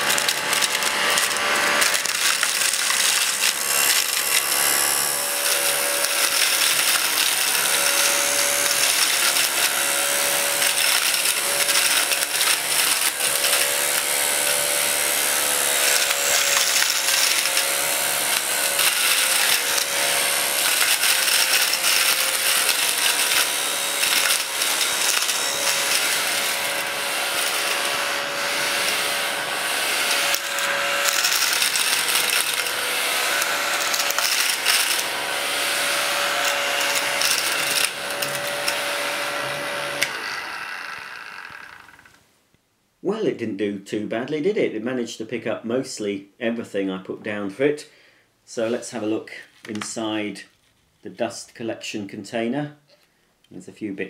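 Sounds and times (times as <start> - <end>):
little clicks of paper bits: 0.0 - 10.0, 10.6 - 28.0, 30.0 - 35.1, 36.2 - 38.8
mini vacuum cleaner motor whining: 0.0 - 42.2.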